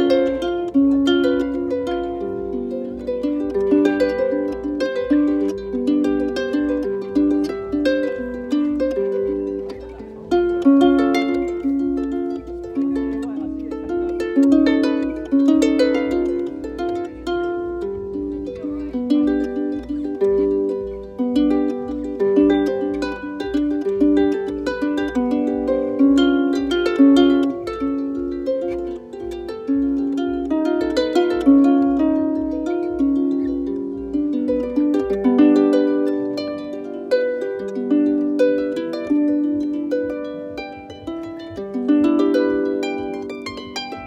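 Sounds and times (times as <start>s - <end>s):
harp plucked melody: 0.0s - 44.0s.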